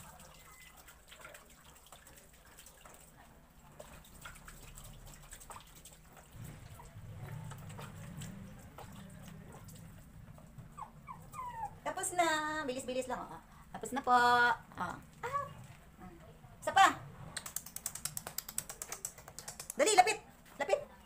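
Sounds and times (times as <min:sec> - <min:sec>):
water splashing and dripping: 0:00.0 - 0:10.7.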